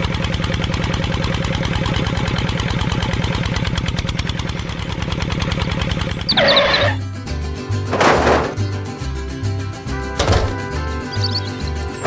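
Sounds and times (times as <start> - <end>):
tractor engine knocking: 0.0 - 6.3.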